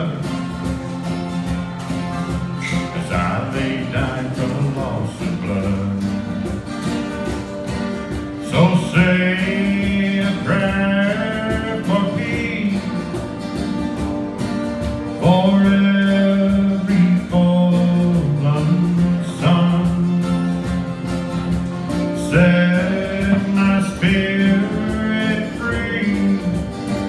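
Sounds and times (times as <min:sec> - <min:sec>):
man singing: 0:00.0 - 0:00.6, 0:02.5 - 0:06.6, 0:08.3 - 0:13.4, 0:15.1 - 0:20.9, 0:22.0 - 0:27.0
acoustic guitars playing: 0:00.0 - 0:27.0.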